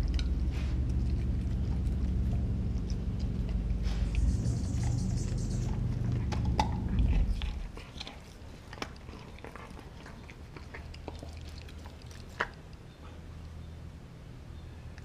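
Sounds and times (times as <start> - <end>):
low rumble: 0.0 - 8.2
dog gnawing frozen bone: 0.0 - 13.0.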